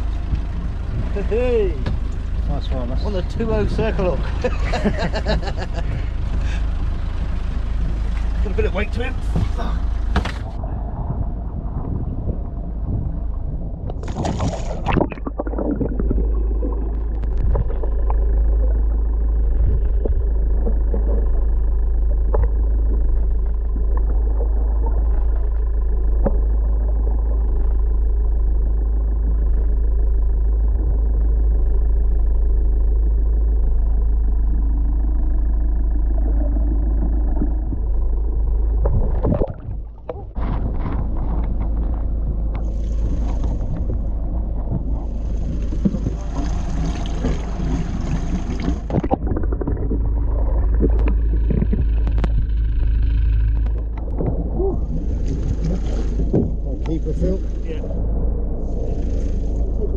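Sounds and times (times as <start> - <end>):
low underwater boat rumble: 0.0 - 59.9
splash in water: 14.0 - 15.9.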